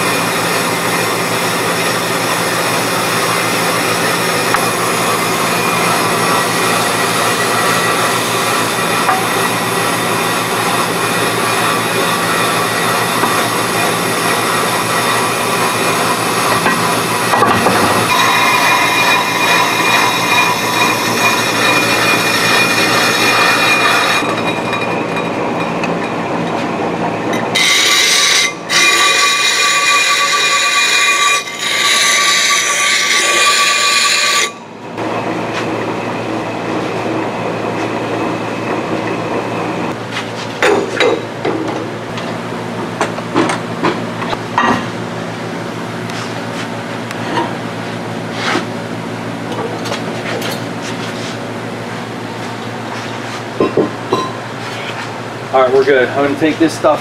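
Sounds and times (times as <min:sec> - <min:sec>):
brake lathe running: 0:00.0 - 0:40.3
high metallic ringing: 0:03.0 - 0:26.2, 0:27.3 - 0:34.7, 0:53.6 - 0:54.5.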